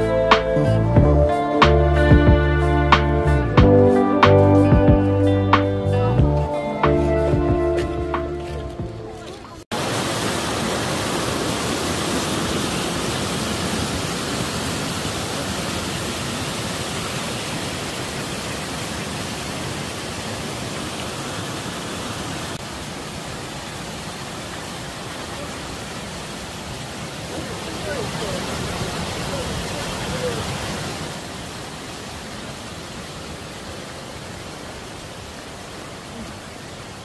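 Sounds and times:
waterfall rushing: 0:09.2 - 0:37.0.

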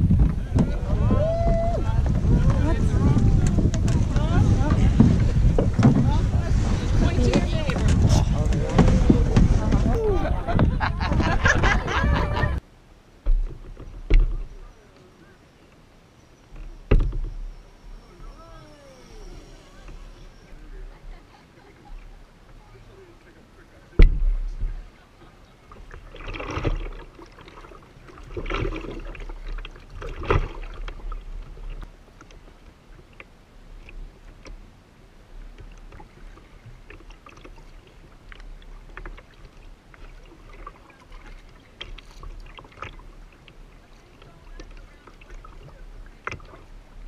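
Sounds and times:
wind rumble on microphone: 0:00.0 - 0:12.6
water lapping against kayak hull: 0:00.0 - 0:47.0.

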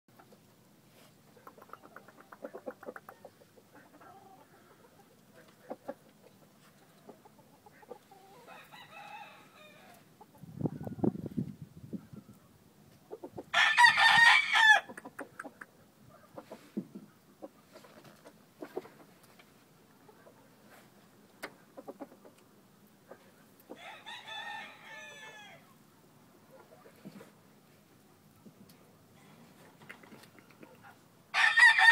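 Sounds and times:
faint rooster call: 0:08.1 - 0:10.1, 0:23.7 - 0:25.8, 0:31.3 - 0:31.9
rooster crowing: 0:08.3 - 0:10.1, 0:13.5 - 0:14.9, 0:23.8 - 0:25.6, 0:31.3 - 0:31.9.

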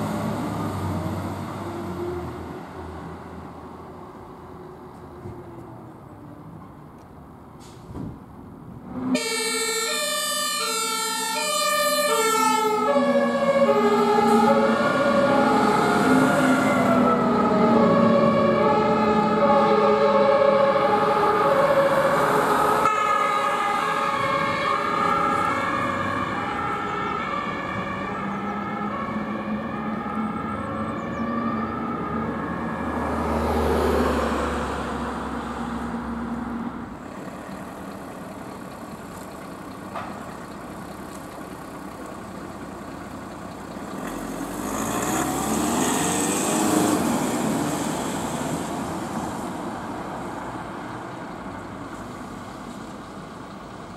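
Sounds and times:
vehicles driving past: 0:00.0 - 0:53.9
two-tone emergency siren: 0:09.0 - 0:35.1.

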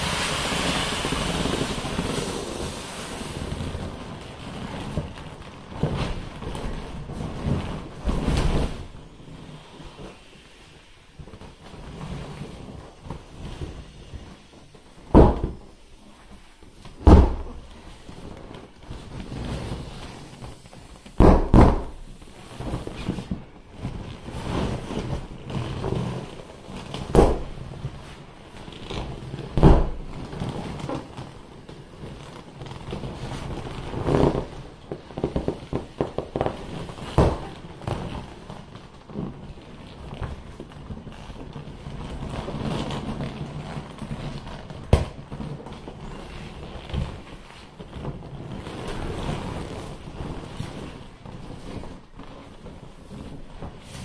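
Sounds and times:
inflatable toy popping: 0:00.0 - 0:54.0
vinyl crinkling and squeaking: 0:03.5 - 0:54.0.

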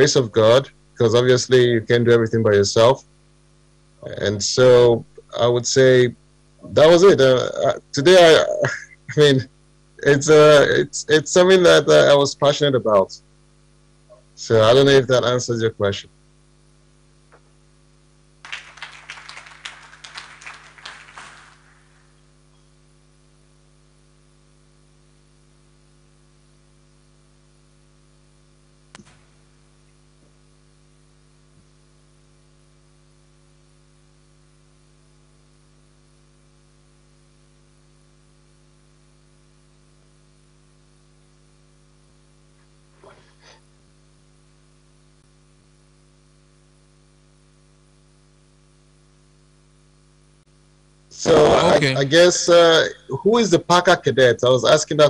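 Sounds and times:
electrical hum: 0:00.0 - 0:55.0
applause: 0:18.4 - 0:22.2.

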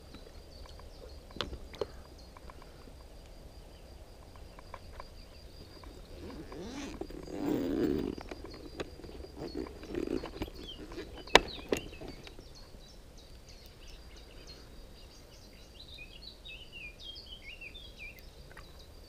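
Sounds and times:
small birds chirping: 0:00.0 - 0:19.0
fabric pocket rustling: 0:05.6 - 0:12.3.

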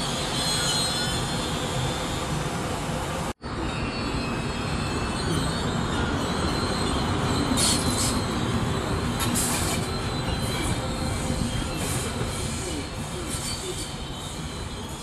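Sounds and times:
wheels rumbling on rail: 0:00.0 - 0:15.0.

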